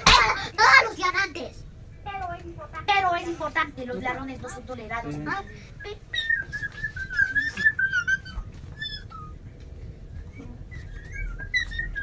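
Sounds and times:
high wavering whistle: 0:05.4 - 0:09.4, 0:10.2 - 0:12.0.

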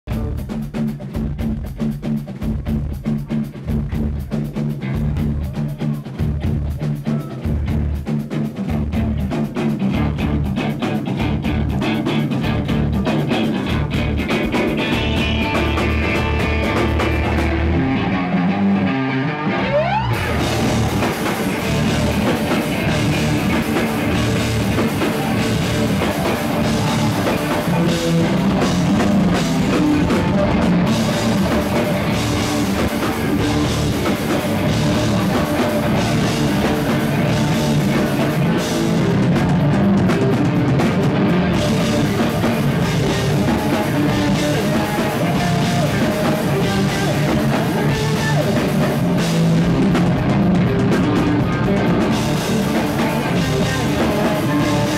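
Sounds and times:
rock band playing: 0:00.0 - 0:54.9
rising pitch sweep: 0:15.1 - 0:38.0.

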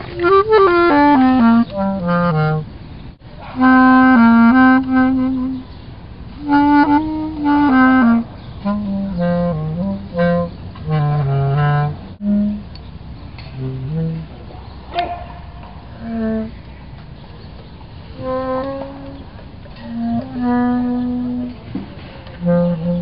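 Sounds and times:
bass clarinet playing notes: 0:00.0 - 0:02.8, 0:03.4 - 0:12.8, 0:13.5 - 0:14.5, 0:16.0 - 0:16.7, 0:18.1 - 0:23.0.

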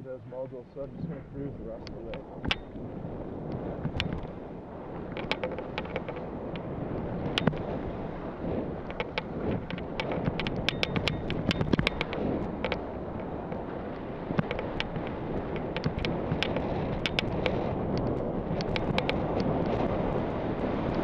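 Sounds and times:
wind rushing over microphone: 0:00.0 - 0:21.0
sharp clicks: 0:01.8 - 0:02.8, 0:03.5 - 0:04.3, 0:05.1 - 0:07.8, 0:08.8 - 0:13.6, 0:14.3 - 0:19.8.

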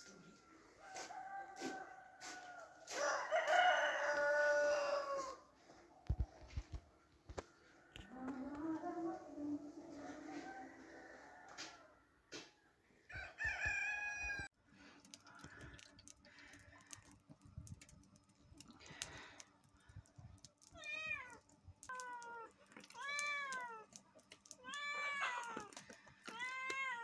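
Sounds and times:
cats meowing: 0:20.6 - 0:27.0.

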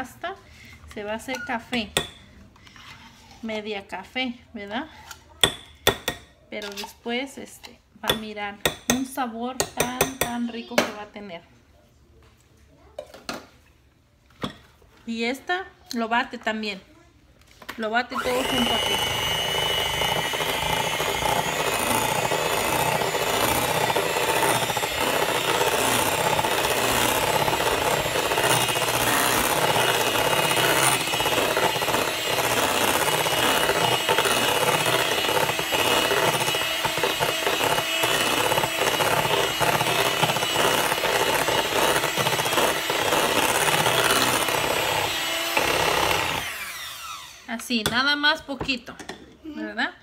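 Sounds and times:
electric hand mixer whirring: 0:18.1 - 0:47.6.

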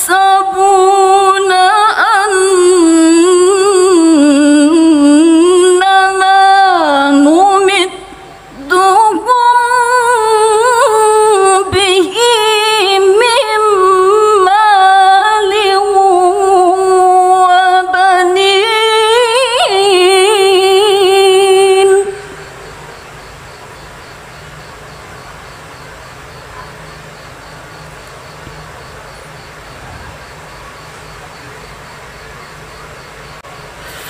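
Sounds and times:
woman chanting melodically: 0:00.0 - 0:23.2.

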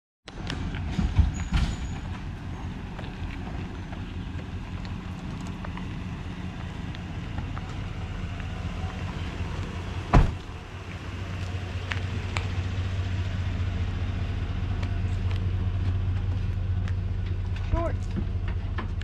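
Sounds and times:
truck engine running low: 0:00.3 - 0:19.0
sharp thump: 0:10.1 - 0:10.4.

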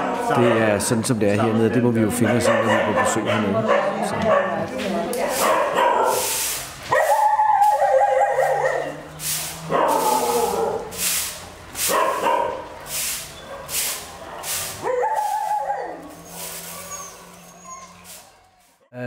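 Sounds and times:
broom sweeping concrete floor: 0:04.7 - 0:18.9
dog whining and howling: 0:06.9 - 0:09.0, 0:09.7 - 0:10.9, 0:14.8 - 0:18.6.

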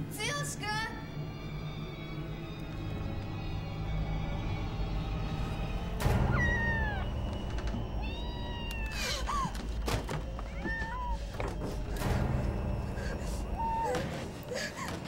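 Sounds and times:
low steady drone: 0:01.0 - 0:10.4
cat meowing: 0:08.0 - 0:09.3, 0:10.5 - 0:11.2.

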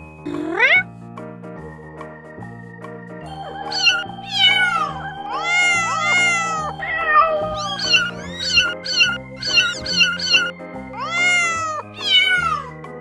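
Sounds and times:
background music with held notes: 0:00.0 - 0:13.0
kittens mewing: 0:00.3 - 0:00.9, 0:03.6 - 0:12.7.

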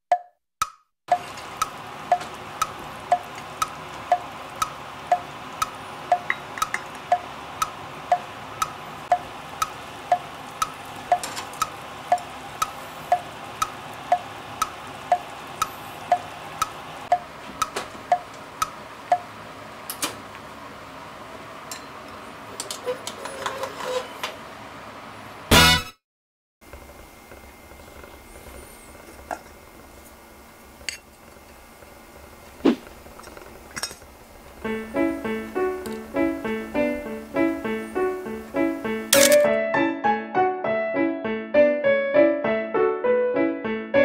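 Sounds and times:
clock ticking: 0:00.1 - 0:19.3
pot simmering on gas burner: 0:01.1 - 0:23.1, 0:26.6 - 0:38.8.

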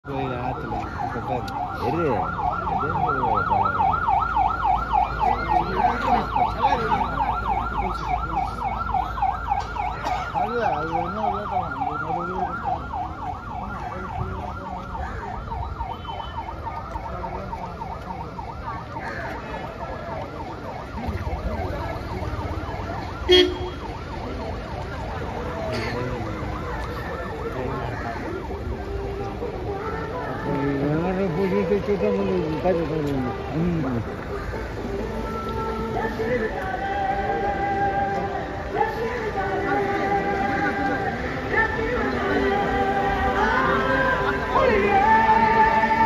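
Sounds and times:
traffic noise: 0:00.0 - 0:46.0
police siren yelp: 0:00.1 - 0:46.0
sharp car horn beep: 0:23.3 - 0:23.8.

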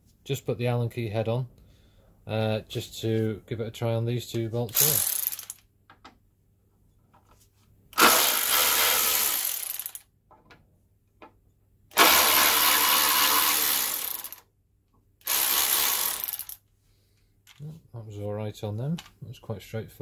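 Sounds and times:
cordless ratchet running: 0:04.7 - 0:05.6, 0:08.0 - 0:10.0, 0:12.0 - 0:14.4, 0:15.2 - 0:16.6.

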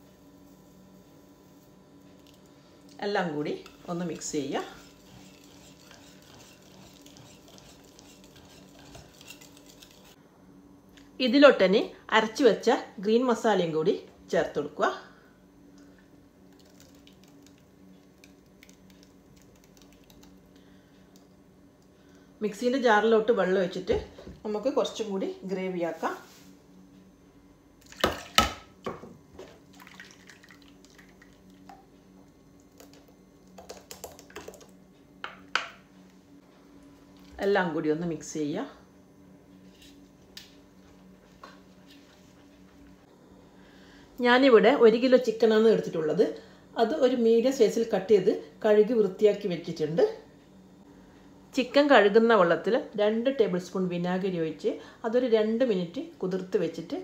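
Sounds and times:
whisk scraping glass bowl: 0:03.5 - 0:10.2.

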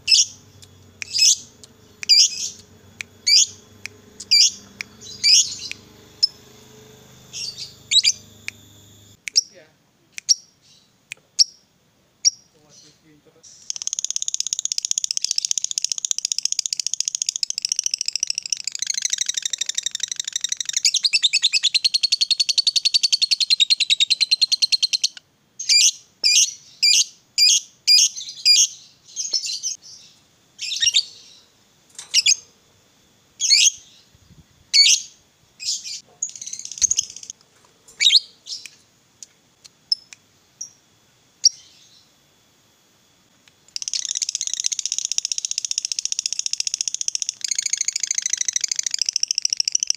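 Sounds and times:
bird chattering trill: 0:00.0 - 0:09.6, 0:13.5 - 0:29.8, 0:30.6 - 0:31.3, 0:33.4 - 0:33.9, 0:34.8 - 0:37.4, 0:43.8 - 0:49.9
bird sharp chirps: 0:00.0 - 0:09.6.

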